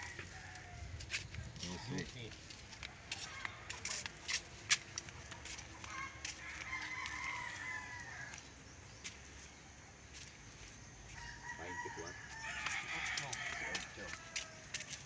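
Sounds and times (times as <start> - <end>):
rooster crowing: 0.0 - 1.0, 5.8 - 8.4, 11.1 - 15.0.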